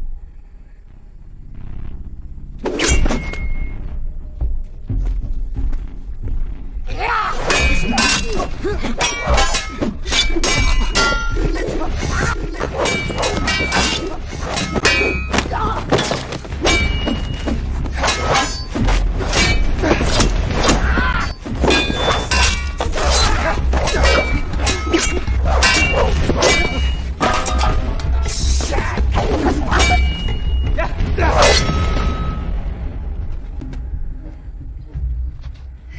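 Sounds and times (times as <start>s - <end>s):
machete blades clanging: 7.5s - 11.6s, 12.2s - 28.6s.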